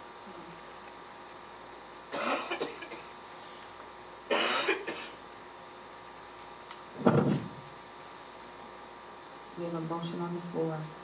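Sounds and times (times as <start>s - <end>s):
woman coughing: 2.1s - 3.1s, 4.3s - 5.2s.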